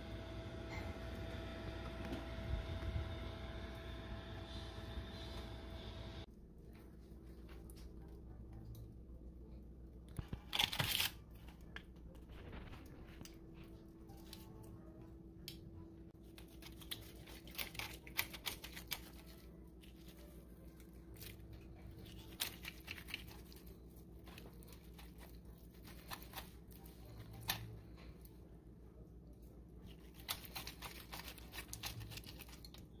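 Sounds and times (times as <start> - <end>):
foil crinkling: 10.2 - 13.3, 16.2 - 28.0, 29.9 - 32.9
fork scraping and meat tearing: 16.3 - 28.0, 29.8 - 32.8.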